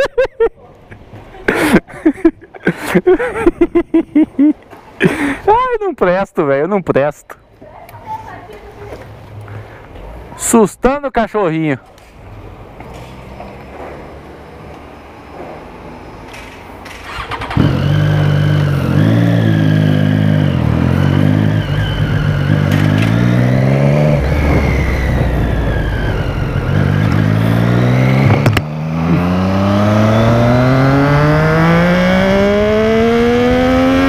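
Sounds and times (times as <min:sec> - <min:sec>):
motorcycle engine accelerating: 0:16.3 - 0:34.0.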